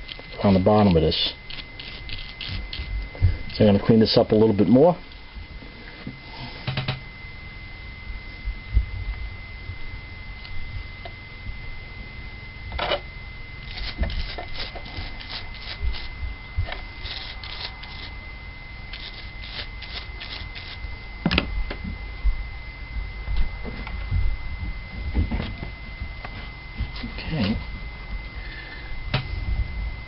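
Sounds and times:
toothbrush scrubbing metal part: 0.1s - 2.9s, 13.6s - 16.1s, 16.7s - 18.2s, 18.9s - 20.8s.

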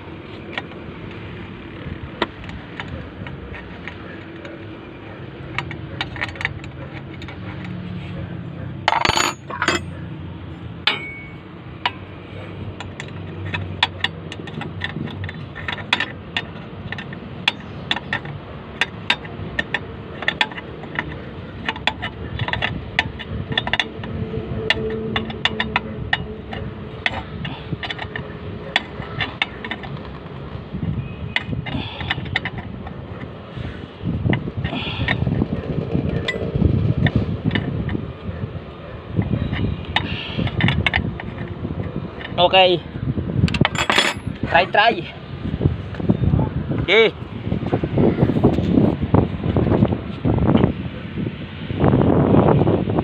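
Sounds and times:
metal tools clicking: 1.8s - 8.0s, 8.6s - 10.1s, 10.8s - 33.4s, 34.2s - 42.8s, 43.5s - 45.1s
loud metal clank: 10.8s - 12.1s.

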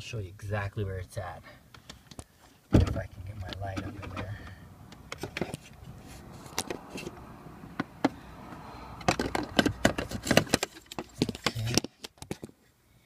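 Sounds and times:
clicks taps and light scraping: 1.7s - 7.2s, 7.8s - 12.7s.

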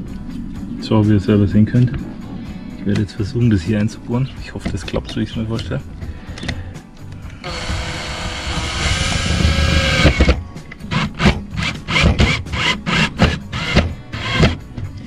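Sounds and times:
cordless drill driving screw: 7.4s - 14.6s.

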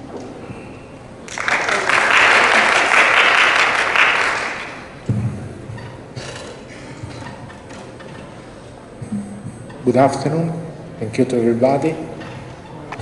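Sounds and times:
audience applauding: 1.3s - 5.0s.

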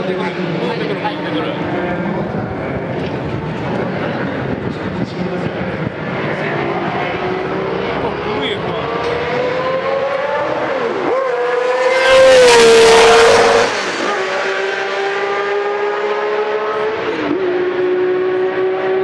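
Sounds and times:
race car engine at high revs: 0.0s - 19.0s.

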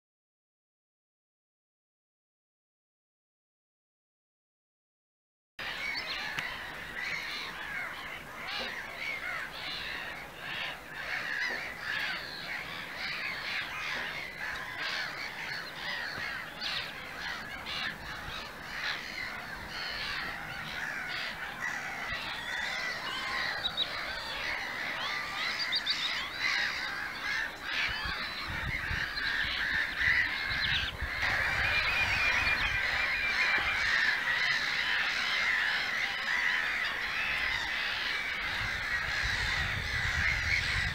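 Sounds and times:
gull colony calling: 5.6s - 40.9s.

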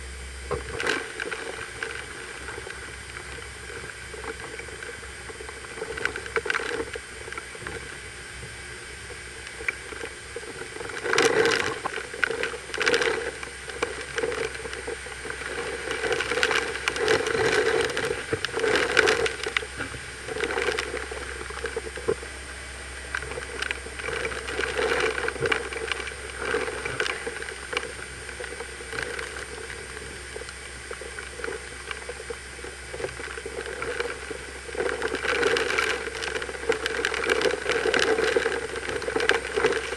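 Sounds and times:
driving rain: 0.0s - 39.9s.

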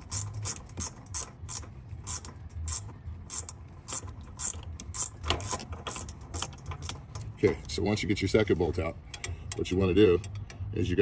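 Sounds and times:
ratcheting wrench clicking: 0.0s - 7.3s.

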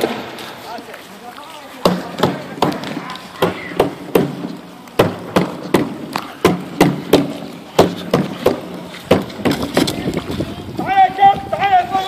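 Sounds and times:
tear gas launchers firing: 0.0s - 0.8s.

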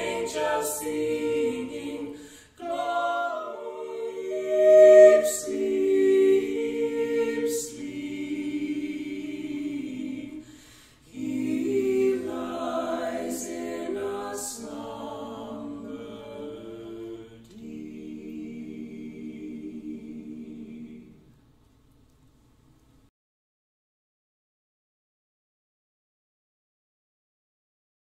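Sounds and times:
mixed vocal quartet singing in harmony: 0.0s - 21.5s.

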